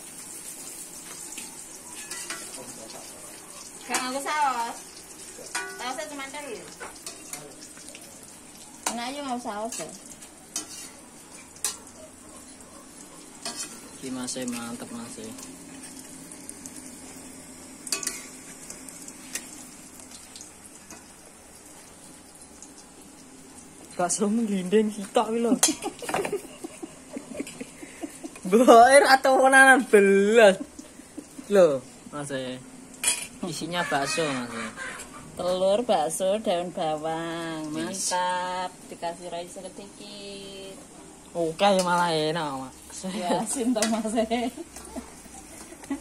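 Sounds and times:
food sizzling in hot oil: 0.0 - 46.0
metal utensil clanking on wok: 5.5 - 6.0, 17.9 - 18.3, 25.6 - 26.3, 33.0 - 33.4.

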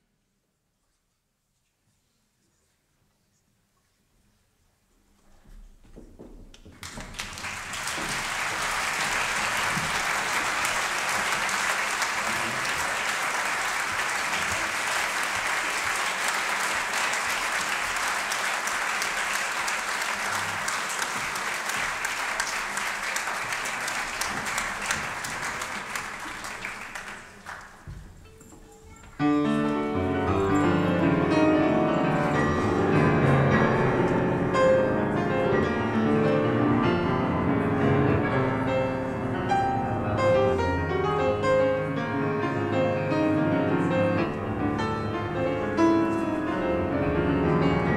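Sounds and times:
audience applauding: 6.6 - 28.0.

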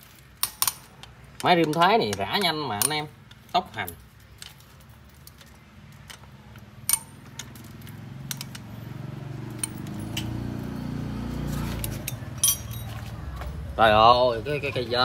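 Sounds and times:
socket wrench metal clinks: 9.6 - 10.4, 11.8 - 13.0.

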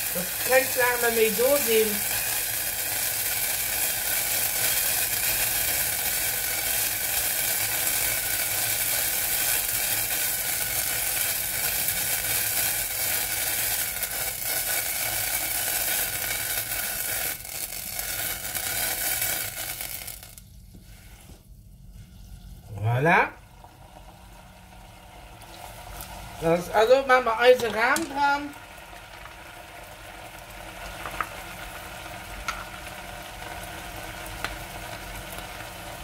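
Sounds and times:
sauce sizzling in a saucepan: 0.0 - 36.0.

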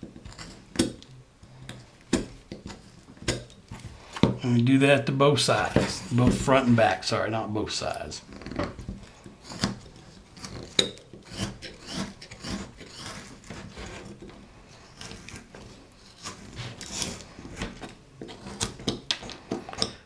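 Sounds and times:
knife scraping wood: 0.0 - 4.4, 8.3 - 20.0.

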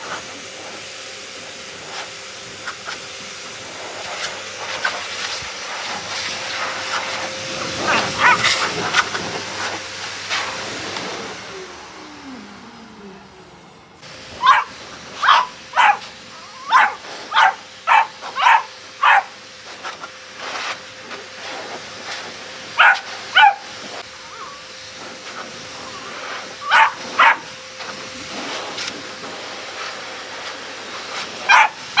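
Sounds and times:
pet dryer blowing: 0.0 - 32.0
puppy yapping: 7.8 - 8.8, 14.4 - 19.3, 22.8 - 24.7, 25.8 - 27.6, 31.5 - 32.0.

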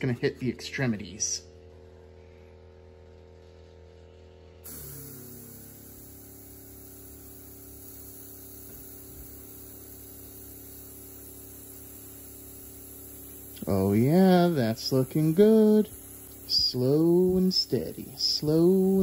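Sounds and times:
low steady hum: 0.0 - 19.0
airbrush hissing: 4.6 - 19.0.

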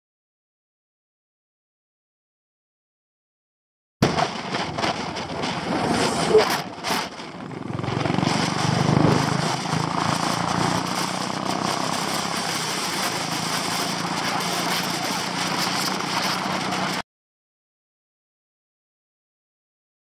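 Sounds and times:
motorcycle engine cruising: 4.0 - 17.0
wind and road rush: 4.0 - 17.0
bus passing by: 7.3 - 17.0.

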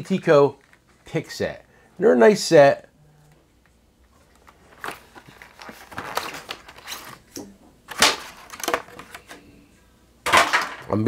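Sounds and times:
plastic blister pack crackling: 4.1 - 9.4.

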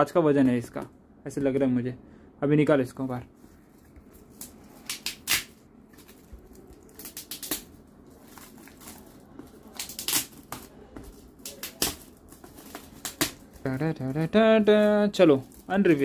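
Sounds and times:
metallic gift wrap crinkling: 3.4 - 16.0.

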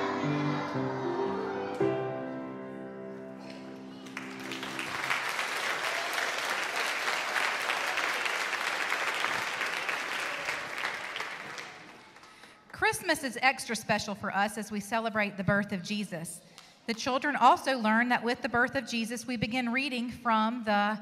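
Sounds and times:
audience applause: 3.4 - 12.5.

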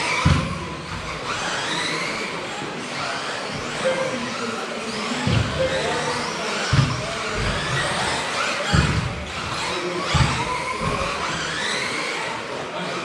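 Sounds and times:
cars thumping on track: 0.0 - 1.6, 4.9 - 11.6
rc car motors whining: 0.0 - 13.0.

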